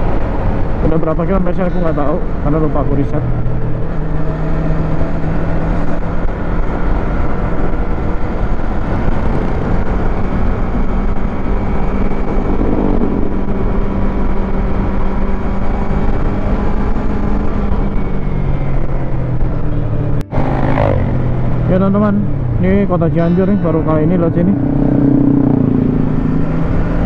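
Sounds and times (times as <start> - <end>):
motorcycle engine cruising: 0.0 - 27.0
wind on helmet microphone: 4.6 - 20.4.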